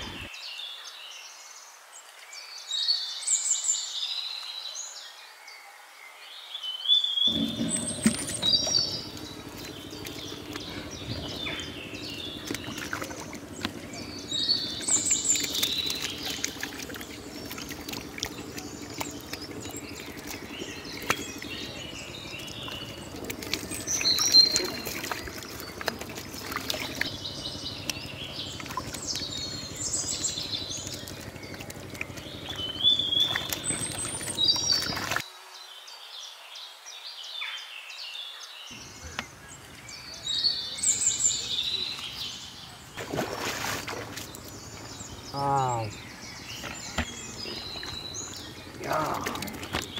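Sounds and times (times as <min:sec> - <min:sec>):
birds chirping: 0:00.0 - 0:00.8, 0:07.2 - 0:35.2, 0:38.0 - 0:49.9
catfish splashing in water: 0:07.3 - 0:35.2, 0:43.0 - 0:49.9.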